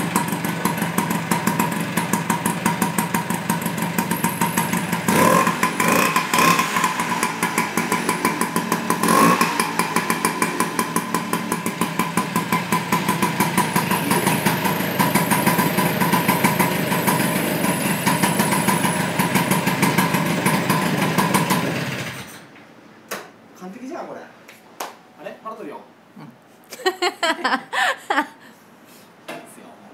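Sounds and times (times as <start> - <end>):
scooter engine idling: 0.0 - 22.2
engine revving: 4.3 - 19.2.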